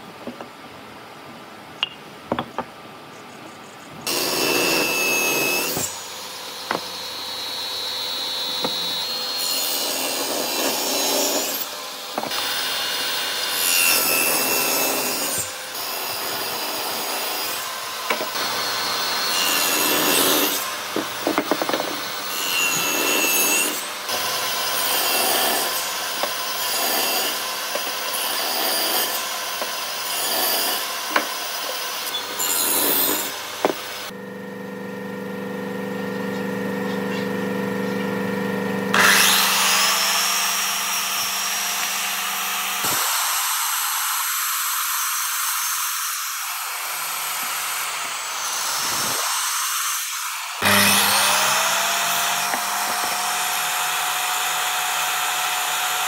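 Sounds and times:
wood being sawn: 0:04.1 - 0:34.1, 0:38.9 - 0:44.2, 0:46.6 - 0:56.0.

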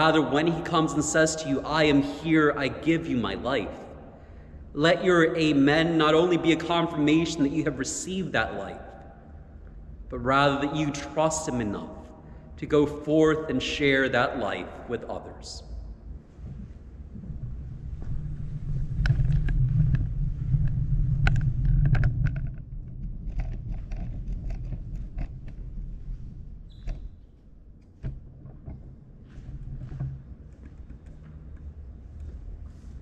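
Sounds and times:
loud low rumble: 0:14.4 - 0:26.7.

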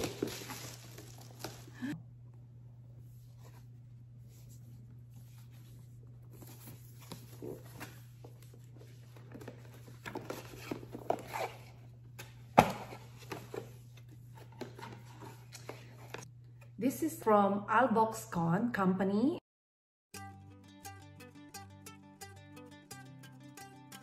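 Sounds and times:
cardboard packaging rustling: 0:00.0 - 0:02.0, 0:06.3 - 0:11.9.

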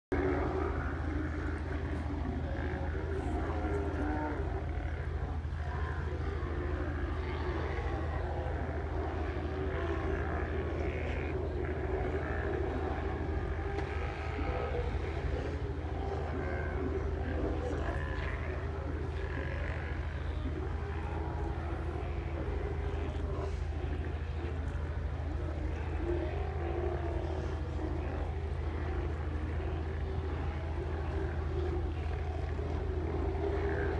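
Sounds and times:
sea lions roaring and growling: 0:00.1 - 0:33.9
boat engine humming: 0:27.3 - 0:33.9.

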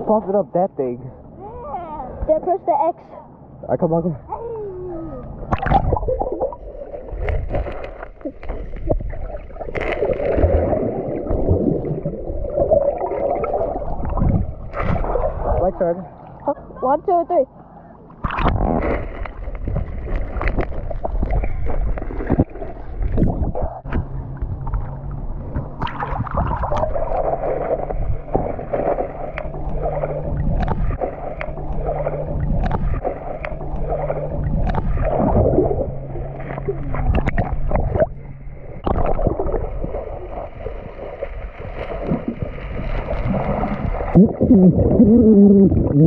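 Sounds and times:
steady low hum: 0:00.0 - 0:46.0
muffled underwater bubbling: 0:04.5 - 0:16.8, 0:18.2 - 0:46.0
underwater clicks and knocks: 0:30.4 - 0:35.1, 0:37.0 - 0:38.1.

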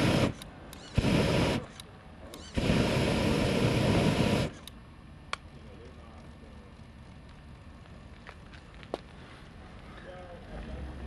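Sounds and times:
flamethrower rushing hiss: 0:00.0 - 0:01.8, 0:02.4 - 0:04.7.

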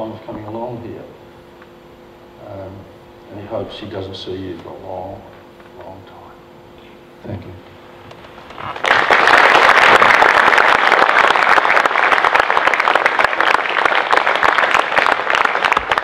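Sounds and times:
audience applauding: 0:08.6 - 0:16.0.

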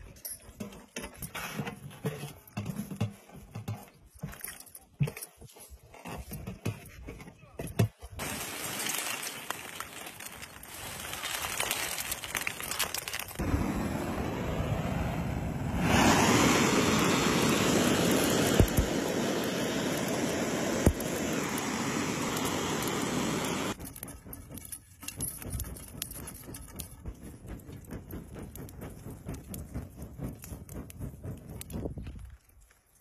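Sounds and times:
coals crackling and ticking: 0:08.1 - 0:15.1, 0:16.0 - 0:33.0
gas torch hissing: 0:13.4 - 0:23.8.

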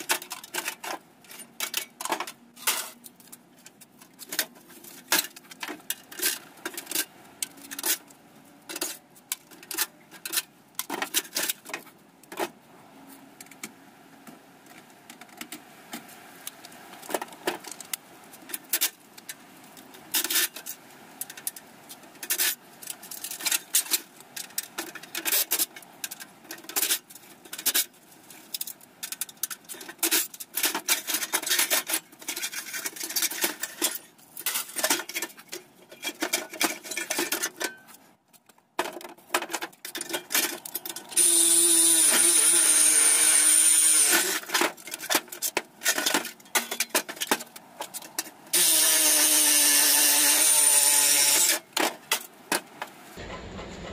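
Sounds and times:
metal parts clinking and rattling: 0:00.0 - 0:08.1, 0:22.2 - 0:41.2, 0:44.0 - 0:48.4.

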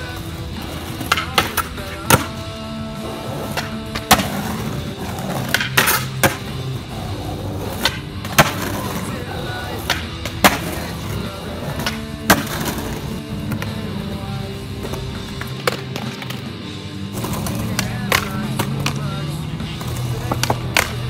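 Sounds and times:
background music: 0:00.0 - 0:21.0
skateboard pops and landings: 0:05.2 - 0:06.5, 0:09.8 - 0:10.9, 0:11.6 - 0:13.8.

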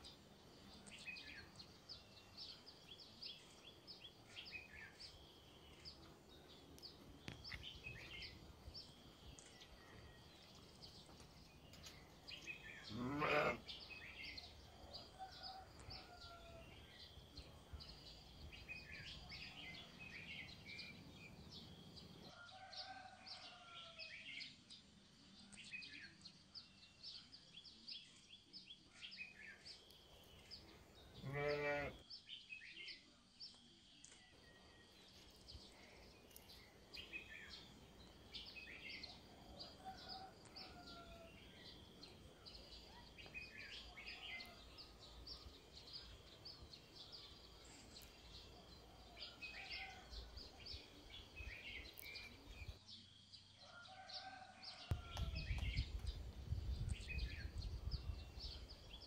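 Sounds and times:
small birds chirping: 0:00.0 - 0:21.9, 0:25.4 - 0:53.0
farm animal bleating: 0:12.9 - 0:13.7, 0:31.2 - 0:32.0.

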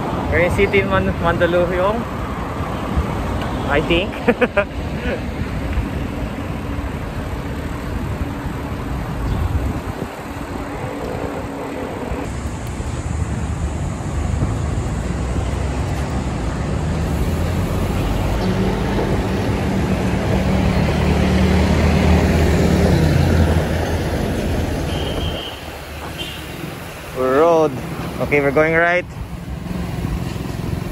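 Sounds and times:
motor vehicle engine drone: 0:00.0 - 0:30.9
road traffic: 0:00.0 - 0:30.9
wind noise on microphone: 0:07.9 - 0:21.2, 0:22.1 - 0:26.9.

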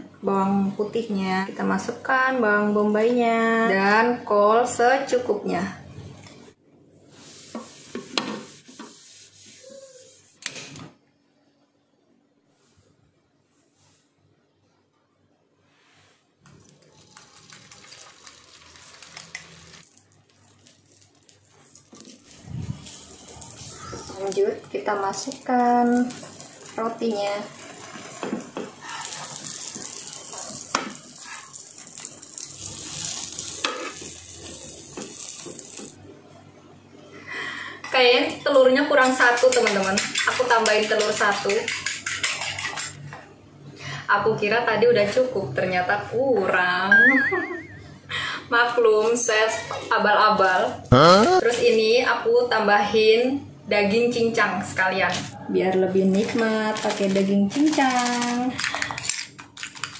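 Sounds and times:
utensil scraping in a bowl: 0:07.2 - 0:10.4, 0:39.0 - 0:43.0
omelette sizzling in a frying pan: 0:16.6 - 0:36.0.

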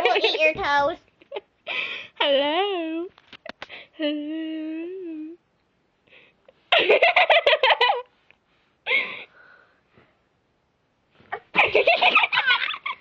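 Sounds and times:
girl giggling: 0:00.0 - 0:00.6, 0:06.7 - 0:08.1, 0:11.4 - 0:13.0.

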